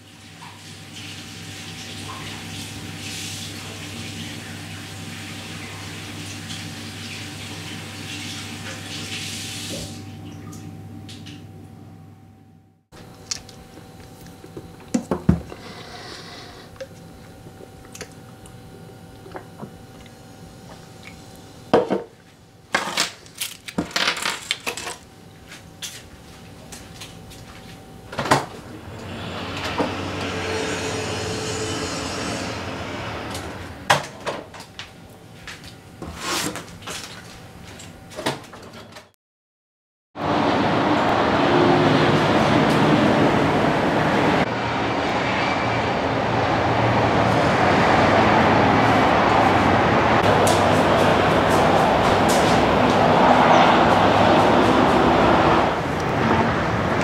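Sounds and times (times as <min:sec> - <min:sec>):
outdoor rushing noise: 0:28.6 - 0:34.2, 0:40.2 - 0:57.0.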